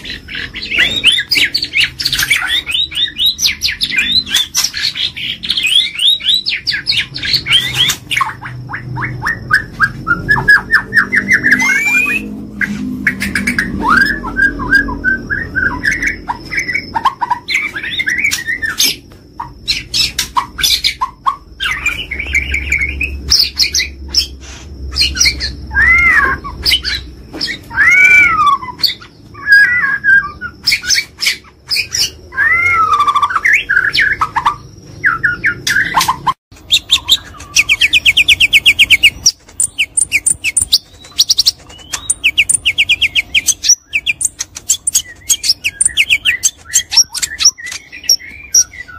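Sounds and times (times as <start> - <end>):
bird whistled song: 0.0 - 48.9
buzzy rattling bird trills: 33.0 - 48.9.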